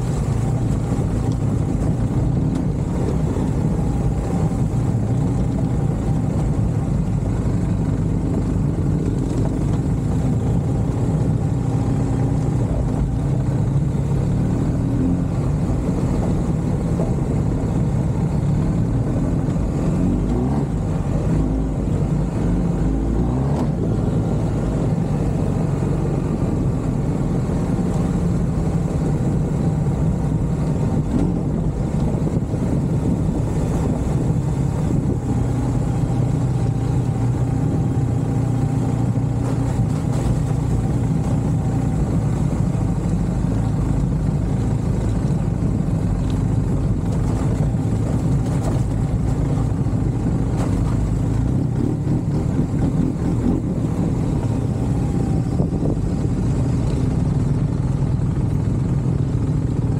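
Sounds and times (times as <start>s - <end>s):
road and wind noise: 0.0s - 59.9s
vehicle engine humming: 0.0s - 59.9s.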